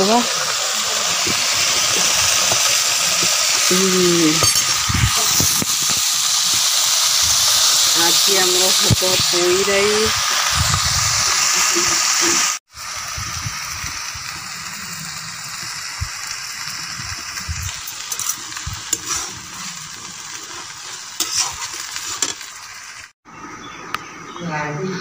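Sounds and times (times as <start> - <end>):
vegetables sizzling in a pan: 0.0 - 23.2.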